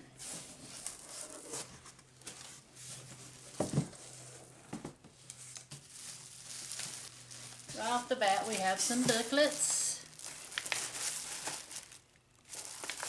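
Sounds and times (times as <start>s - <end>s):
plastic packaging crinkling: 5.3s - 13.0s.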